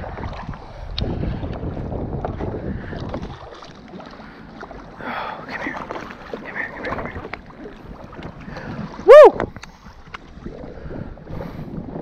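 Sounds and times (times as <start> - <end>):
wind on microphone: 0.0 - 4.1, 5.6 - 12.0
water moving around boat hull: 0.0 - 12.0.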